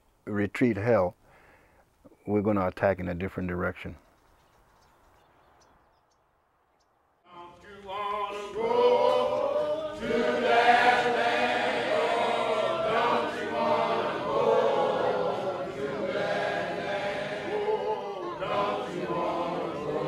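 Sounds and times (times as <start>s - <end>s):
choir singing: 7.3s - 20.0s.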